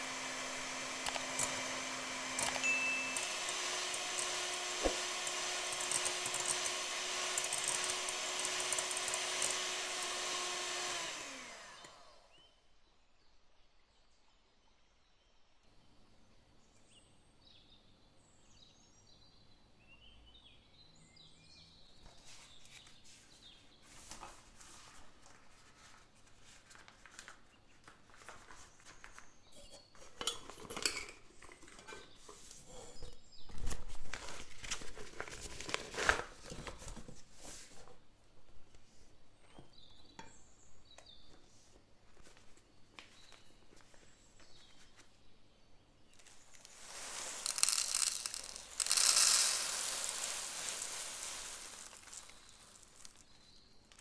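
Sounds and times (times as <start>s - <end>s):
piping bag rustling: 46.1s - 54.0s.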